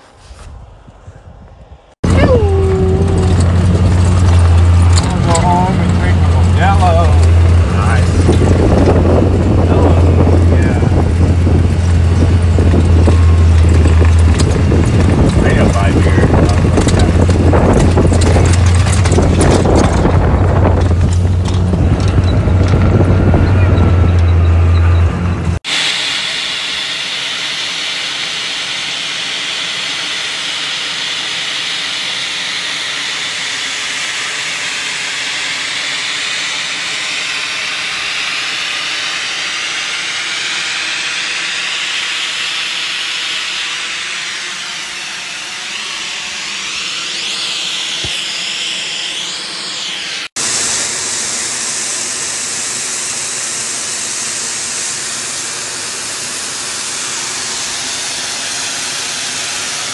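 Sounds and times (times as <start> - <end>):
snowmaking guns spraying: 2.0 - 59.9.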